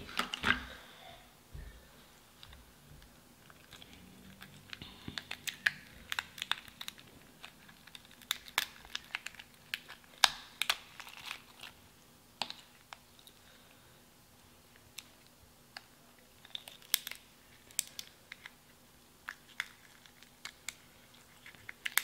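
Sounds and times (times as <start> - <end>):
shellfish shell cracking: 3.5 - 11.8, 16.4 - 18.6, 19.2 - 22.0.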